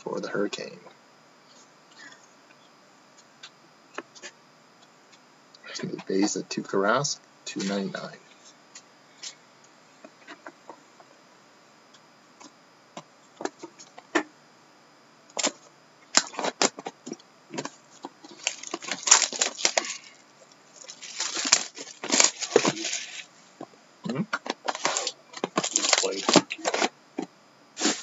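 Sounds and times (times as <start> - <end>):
plastic wrap crinkling: 17.6 - 23.3, 24.6 - 26.9.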